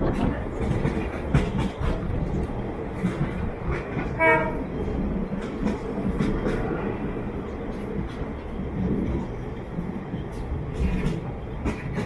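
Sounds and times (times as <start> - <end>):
wheels clattering over rails: 0.0 - 7.0
train rumbling: 0.0 - 12.0.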